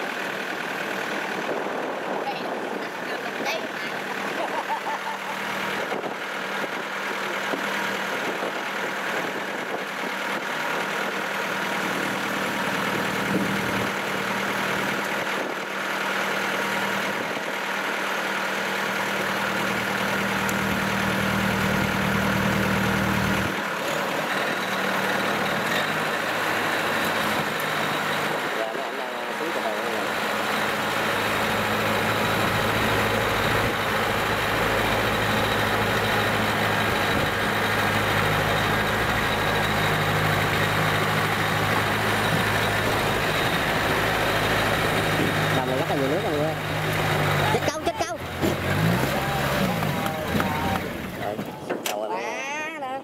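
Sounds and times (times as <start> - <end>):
combine harvester engine running: 0.0 - 52.2.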